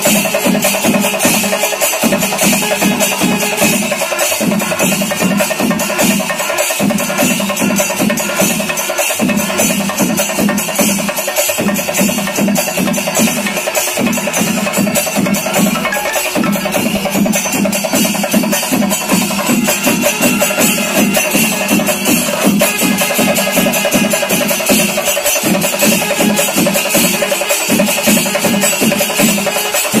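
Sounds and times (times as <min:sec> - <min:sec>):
fast drumming: 0:00.0 - 0:30.0
bright metallic strikes: 0:13.4 - 0:19.7.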